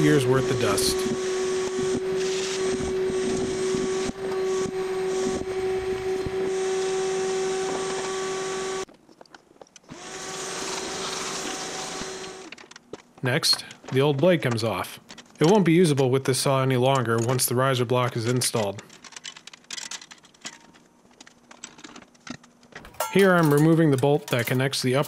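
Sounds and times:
shop vacuum running: 0:00.0 - 0:08.9, 0:09.9 - 0:12.6.

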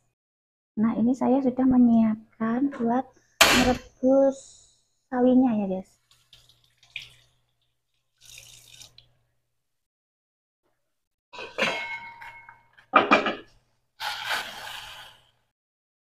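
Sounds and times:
tap water splashing: 0:06.0 - 0:09.2
metal pot lid clanking: 0:11.4 - 0:13.5
boiling water hissing: 0:14.0 - 0:15.3.

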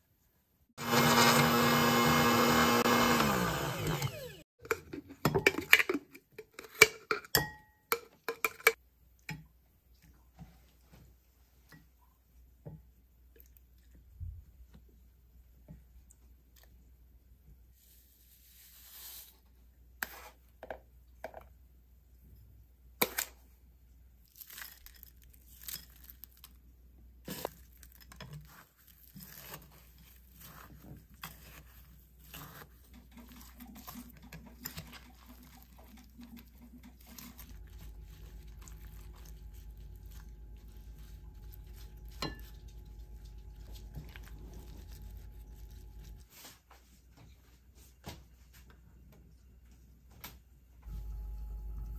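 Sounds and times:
spoon scraping glass bowl: 0:28.4 - 0:46.2
low hum: 0:50.9 - 0:51.9.

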